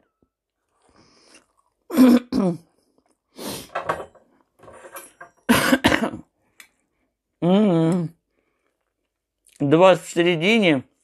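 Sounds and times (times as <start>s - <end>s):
woman coughing: 1.9s - 2.6s, 5.5s - 6.3s
woman clearing throat: 1.9s - 2.7s, 5.5s - 6.3s.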